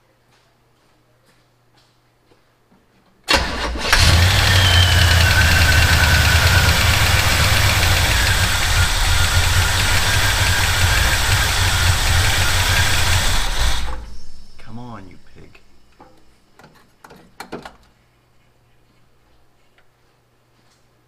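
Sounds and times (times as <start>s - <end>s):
engine starter cranking: 3.3s - 14.7s
vehicle engine running: 3.9s - 15.3s.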